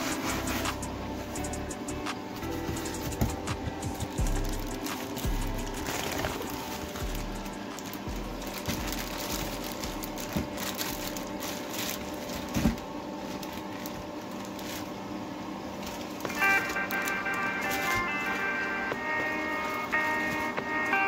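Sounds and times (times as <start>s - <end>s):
cardboard box rustling: 0.0s - 0.8s, 2.4s - 14.9s
plastic bag crinkling: 4.2s - 15.1s, 15.7s - 21.0s.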